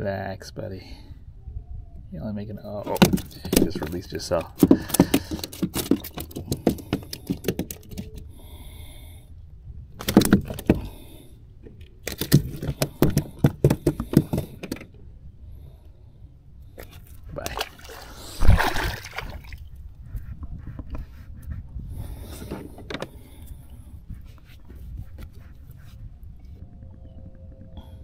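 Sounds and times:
clattering on plastic kayak deck: 0:02.9 - 0:08.2, 0:10.0 - 0:11.0, 0:12.0 - 0:14.9
loud thump and rustle: 0:18.4 - 0:19.0.

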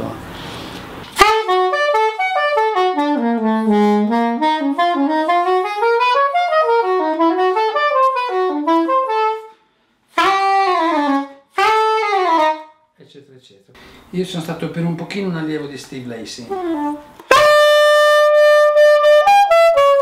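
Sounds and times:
soprano saxophone melody: 0:01.1 - 0:12.8, 0:16.4 - 0:20.0.

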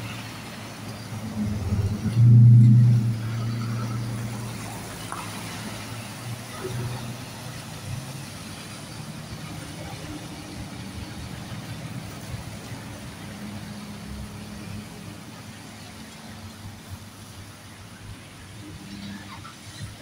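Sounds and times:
truck engine passing: 0:00.0 - 0:15.0
tyres hissing on wet road: 0:00.0 - 0:20.0.

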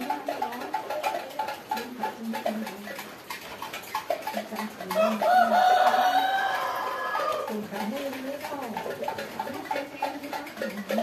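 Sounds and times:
chickens clucking: 0:00.0 - 0:11.0
rooster crowing: 0:05.0 - 0:07.5.

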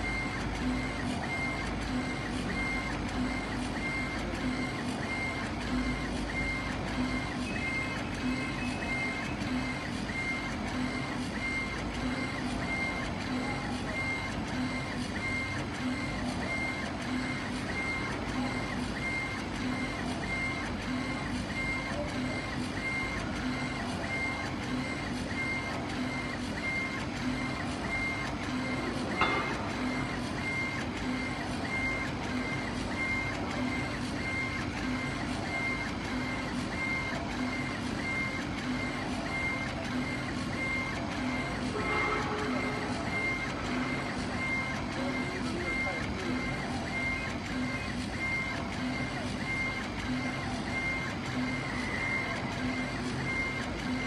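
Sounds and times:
laser engraving machine humming: 0:00.0 - 0:54.0.

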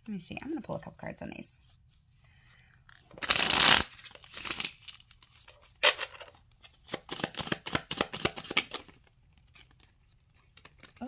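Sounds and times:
cards shuffled by hand: 0:02.8 - 0:11.0
paper rustling: 0:08.6 - 0:11.0.

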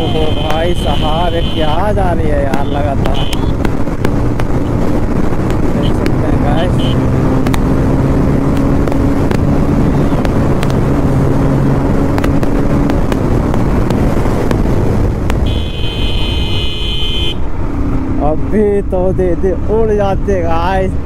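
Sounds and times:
vehicle horn: 0:00.0 - 0:01.8, 0:02.6 - 0:03.6, 0:06.6 - 0:07.0, 0:15.4 - 0:17.4
wind noise on microphone: 0:00.0 - 0:17.7
motorcycle engine hum: 0:00.0 - 0:21.0.

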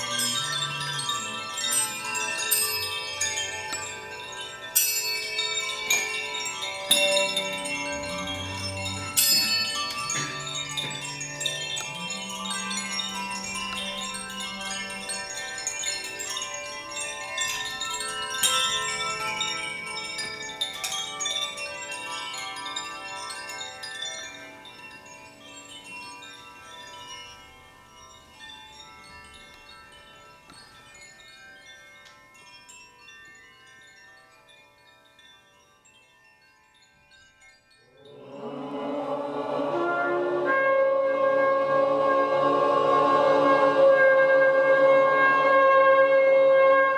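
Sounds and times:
hand chimes ringing: 0:00.0 - 0:39.4
blown horn sustained tone: 0:38.3 - 0:46.9.

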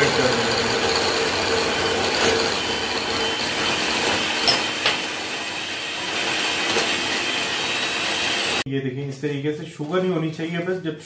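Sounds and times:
electric hand mixer whipping: 0:00.0 - 0:08.6.

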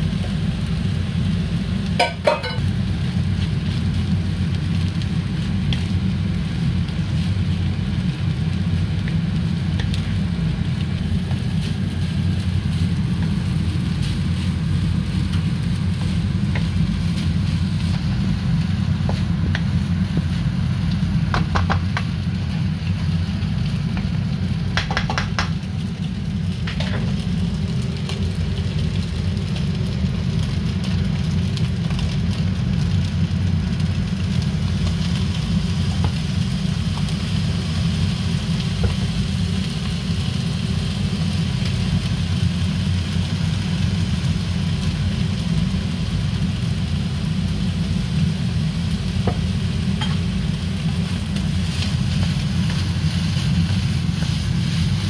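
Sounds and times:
low rumble: 0:00.6 - 0:39.8
wooden spoon scraping a wok: 0:50.0 - 0:55.0.

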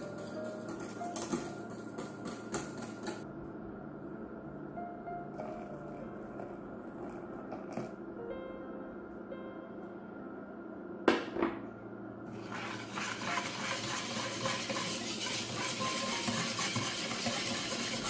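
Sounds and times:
wire whisk beating liquid in bowl: 0:12.4 - 0:18.0.

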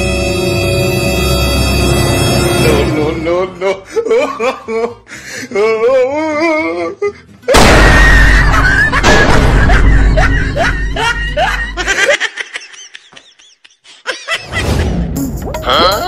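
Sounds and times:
wavering comic music: 0:00.0 - 0:12.5, 0:14.2 - 0:16.0
loud firecracker blast: 0:07.5 - 0:10.1.

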